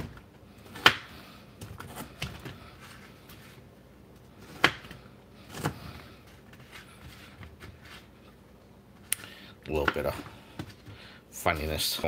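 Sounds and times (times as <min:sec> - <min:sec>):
knife chopping potato: 0:00.0 - 0:01.2, 0:04.5 - 0:05.8.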